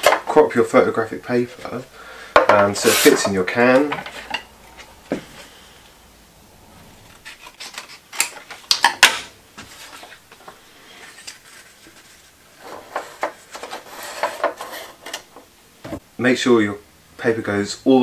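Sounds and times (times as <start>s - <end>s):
paper and tin can rustling: 9.7s - 15.3s.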